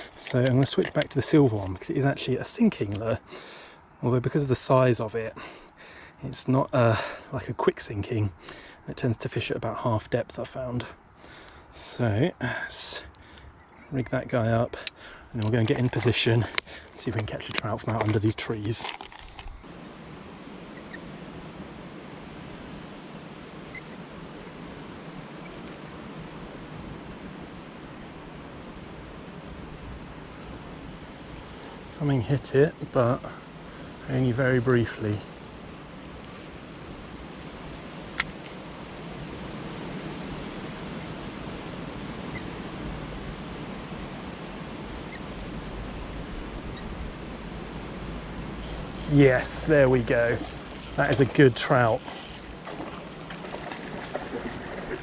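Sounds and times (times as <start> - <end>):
stream water rushing: 0.0 - 2.6, 47.3 - 55.0
stream water flowing: 0.0 - 3.9, 14.9 - 26.2, 47.4 - 55.0
sharp click: 38.2 - 38.6.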